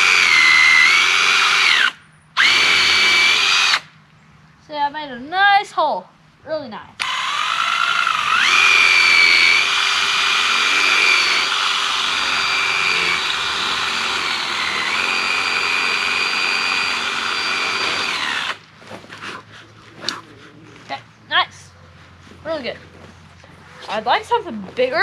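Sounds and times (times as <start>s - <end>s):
cordless drill boring into wood: 0.0s - 3.9s, 7.0s - 18.6s.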